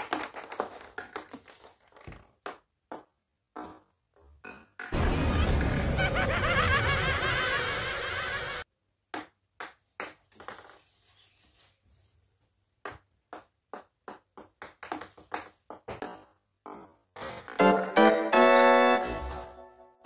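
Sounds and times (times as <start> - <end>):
ping pong balls bouncing on stone: 2.1 - 5.0, 9.1 - 10.8, 12.8 - 17.2
background music: 17.6 - 20.0.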